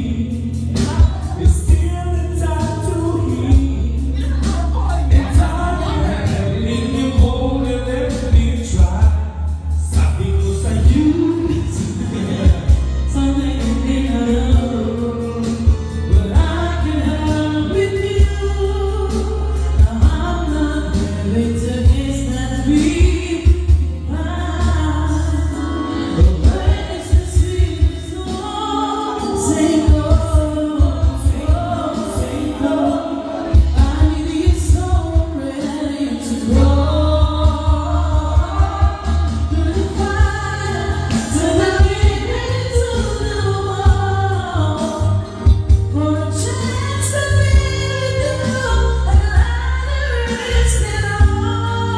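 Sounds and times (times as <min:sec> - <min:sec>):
amplified singing: 0:00.0 - 0:51.9
backing track with heavy bass: 0:00.0 - 0:51.9.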